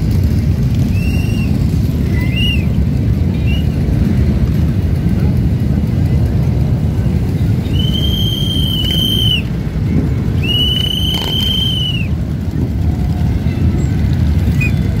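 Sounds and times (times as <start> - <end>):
motorcycle engines idling: 0.0 - 15.0
shrill whistle blasts: 7.6 - 9.5, 10.4 - 12.2.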